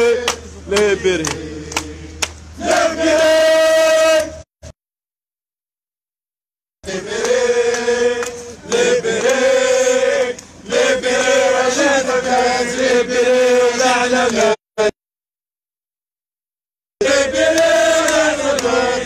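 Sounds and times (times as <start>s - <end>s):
crowd of men chanting: 0.0s - 4.5s, 6.8s - 14.9s, 17.0s - 19.0s.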